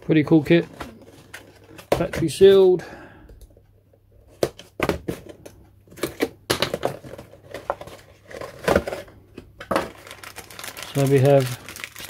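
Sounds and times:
plastic wrap crinkling: 0:09.8 - 0:12.0.

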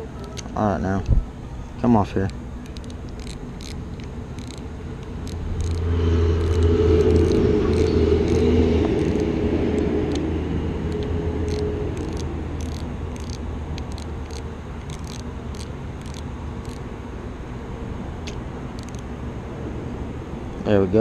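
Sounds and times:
engine droning: 0:00.0 - 0:21.0
fishing reel clicks: 0:02.2 - 0:10.2, 0:10.9 - 0:16.8, 0:18.2 - 0:19.0.

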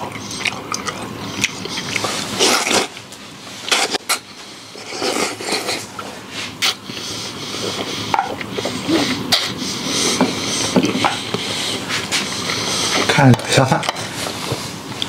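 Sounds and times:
person chewing: 0:00.0 - 0:13.1
person slurping noodles: 0:01.2 - 0:03.0, 0:03.7 - 0:13.1.

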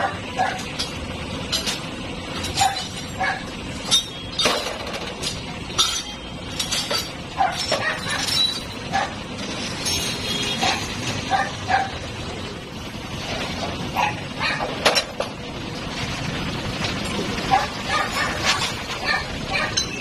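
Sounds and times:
dog barking: 0:00.0 - 0:00.6, 0:02.6 - 0:03.5, 0:07.4 - 0:08.2, 0:08.9 - 0:09.2, 0:10.6 - 0:12.0, 0:14.0 - 0:14.7, 0:17.5 - 0:19.9
wrench clinking on metal: 0:03.8 - 0:08.8, 0:19.6 - 0:20.0.

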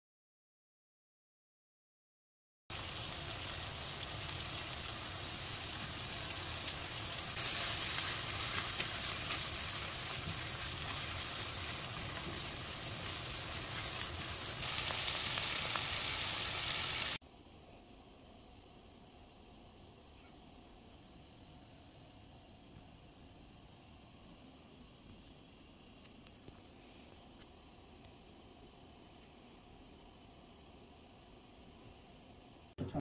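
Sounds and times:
food sizzling in a pan: 0:02.7 - 0:17.2.

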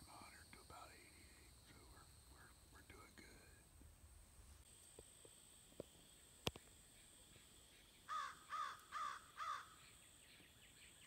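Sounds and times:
crow cawing: 0:08.1 - 0:09.8.

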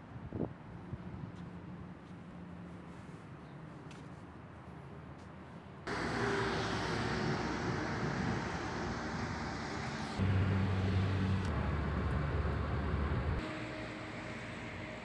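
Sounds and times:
road traffic noise: 0:01.0 - 0:15.0
low vehicle engine hum: 0:05.9 - 0:15.0.

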